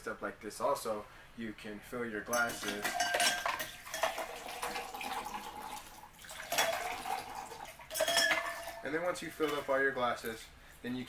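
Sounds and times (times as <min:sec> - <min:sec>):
water pouring into glass: 0:02.4 - 0:09.8.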